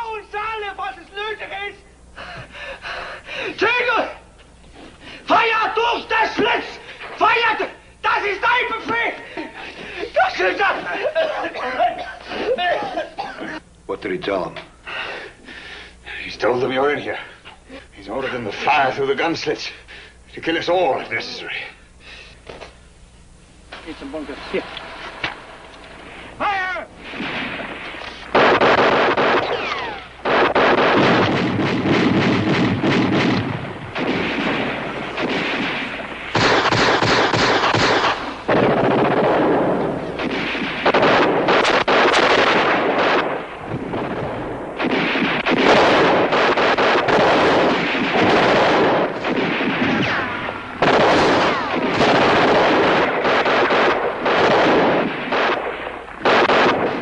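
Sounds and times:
automatic gunfire bursts: 0:28.3 - 0:44.1, 0:44.8 - 0:57.0.

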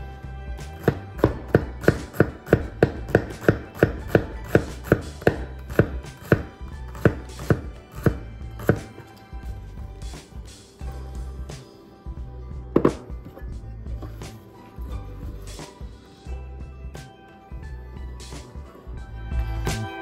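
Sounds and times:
knife chopping on wooden board: 0:00.7 - 0:09.0, 0:12.8 - 0:13.1.

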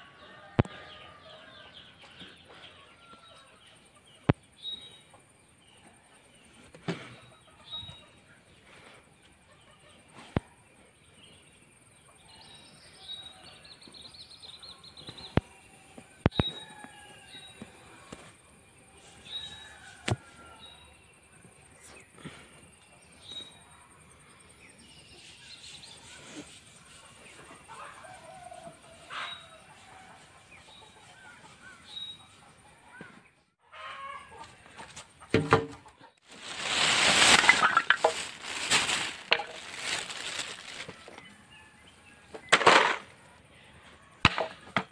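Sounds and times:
chickens clucking: 0:00.0 - 0:10.6, 0:25.2 - 0:44.9
wooden planks knocking: 0:35.3 - 0:35.8
rustling and clattering: 0:35.3 - 0:41.2, 0:42.4 - 0:43.2.

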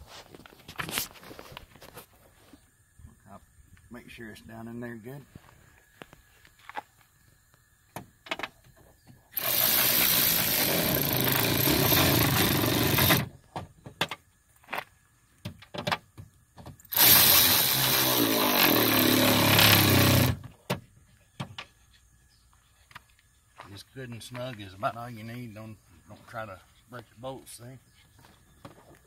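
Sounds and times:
cordless electric ratchet running: 0:09.4 - 0:13.3, 0:16.9 - 0:20.4.

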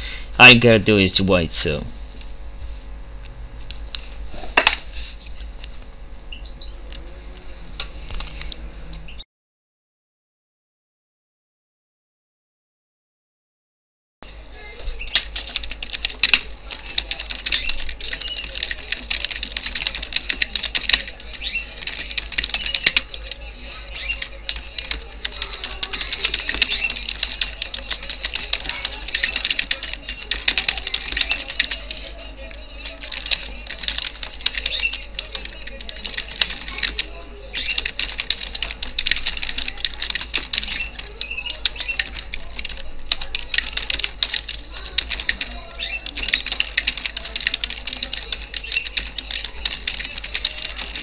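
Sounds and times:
typing on computer keyboard: 0:15.1 - 0:51.0.

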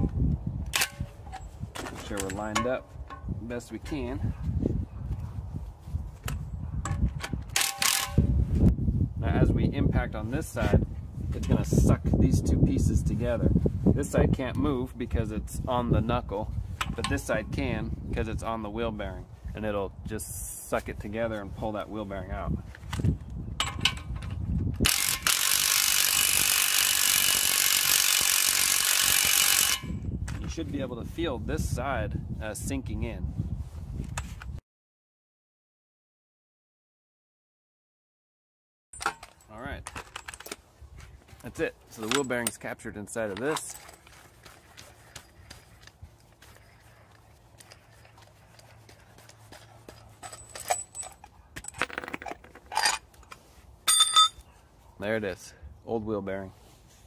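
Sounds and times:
metal parts clinking: 0:00.8 - 0:03.2, 0:07.2 - 0:08.2, 0:39.0 - 0:40.6, 0:42.0 - 0:42.6, 0:43.3 - 0:44.3, 0:50.0 - 0:54.5.

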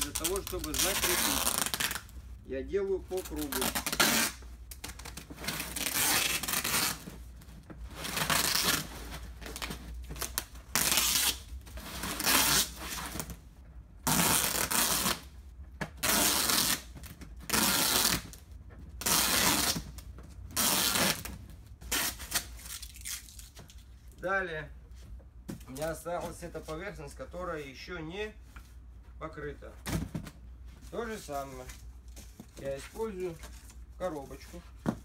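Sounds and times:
packing tape ripping off roll: 0:00.0 - 0:02.1, 0:03.2 - 0:07.1, 0:08.0 - 0:13.4, 0:14.0 - 0:15.3, 0:16.0 - 0:18.4, 0:19.0 - 0:21.3, 0:21.9 - 0:23.6.

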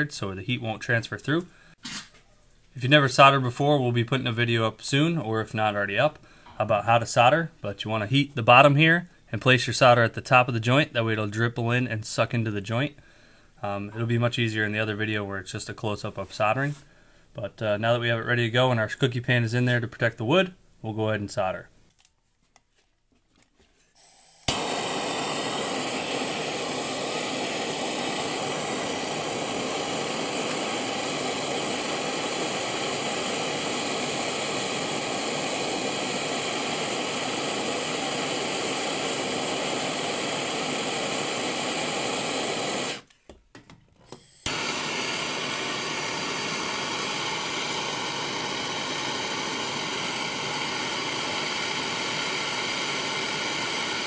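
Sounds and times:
gas torch hissing: 0:24.0 - 0:43.1, 0:44.1 - 0:54.0.

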